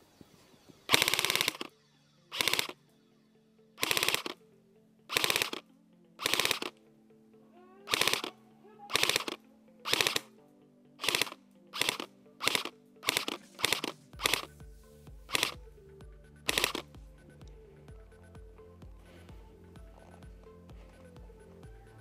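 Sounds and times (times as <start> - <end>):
airsoft rifle bursts: 0.9 - 1.7, 2.3 - 2.8, 3.8 - 4.4, 5.1 - 5.6, 6.2 - 6.8, 7.9 - 10.3, 11.0 - 14.5, 15.3 - 15.6, 16.5 - 16.9.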